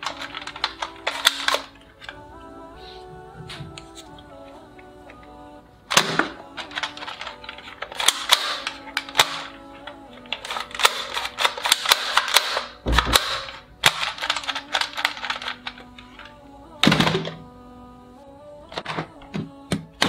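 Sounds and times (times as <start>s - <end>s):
toy blaster clicks and shots: 0.0s - 1.8s, 6.0s - 9.5s, 10.2s - 15.8s
faint background music: 0.0s - 20.0s.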